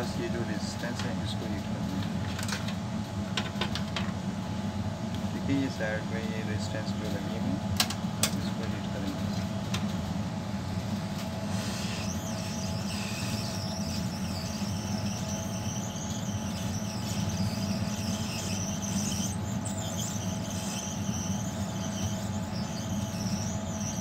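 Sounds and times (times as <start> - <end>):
high wavering whine: 4.4 - 24.0
hot air blower rushing: 10.7 - 19.1.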